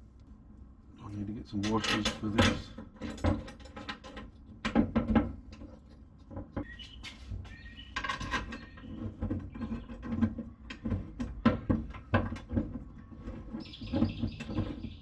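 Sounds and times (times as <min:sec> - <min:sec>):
metal parts clicking and knocking: 0:01.6 - 0:06.7.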